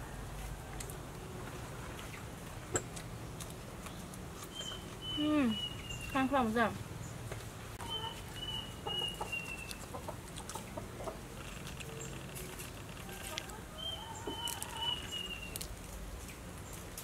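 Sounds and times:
chickens calling: 7.8s - 16.9s.

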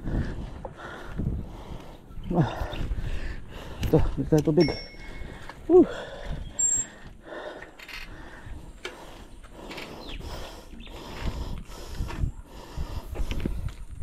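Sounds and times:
person breathing hard: 0.0s - 4.3s, 5.0s - 14.0s
wind rumble on microphone: 0.0s - 7.2s, 8.1s - 14.0s.

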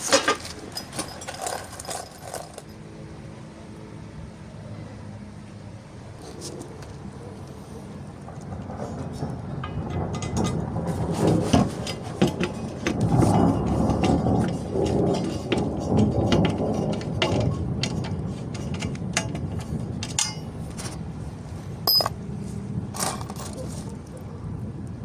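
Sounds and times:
low rumbling handling noise: 6.3s - 25.0s.

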